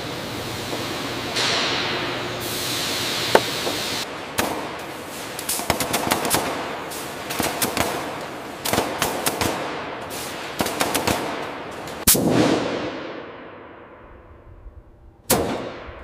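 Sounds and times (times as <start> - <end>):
steady noise: 0.0 - 8.6.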